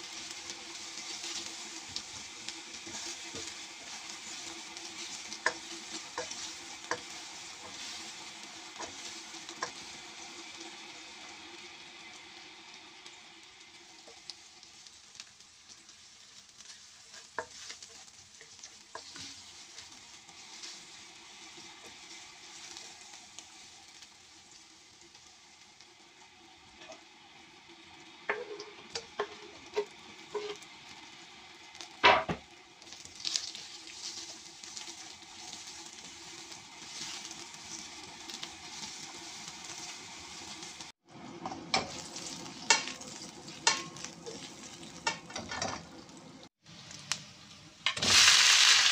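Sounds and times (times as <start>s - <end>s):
spatula stirring and scraping: 0.0s - 10.0s, 15.7s - 23.6s, 28.3s - 30.7s, 33.1s - 45.8s
food sizzling in hot oil: 0.0s - 48.9s.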